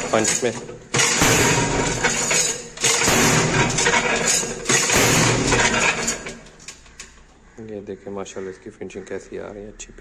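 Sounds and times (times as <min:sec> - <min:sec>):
soap stamping press: 0:00.0 - 0:06.5.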